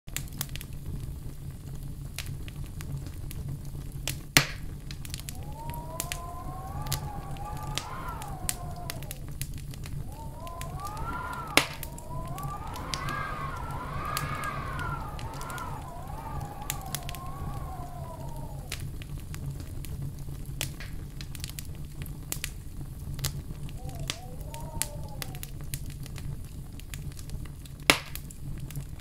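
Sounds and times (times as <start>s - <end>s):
wood fire crackling: 0.2s - 29.0s
loud pops from fire: 1.7s - 28.8s
wavering whistle: 5.2s - 9.2s, 10.0s - 18.8s, 23.8s - 25.5s.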